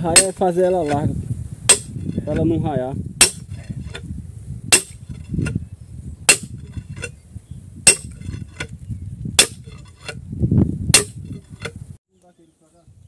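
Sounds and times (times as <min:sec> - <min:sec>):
sledgehammer striking steel rod: 0:00.0 - 0:01.1, 0:01.7 - 0:02.4, 0:03.2 - 0:04.0, 0:04.7 - 0:05.6, 0:06.3 - 0:07.2, 0:07.9 - 0:08.7, 0:09.4 - 0:10.2, 0:10.9 - 0:11.8.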